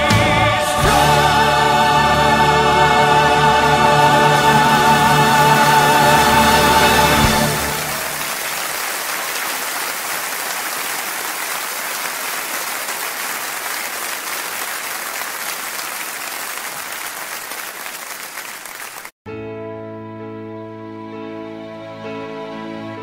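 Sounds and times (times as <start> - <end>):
music: 0.0 - 8.3, 19.3 - 23.0
audience applause: 4.4 - 19.2.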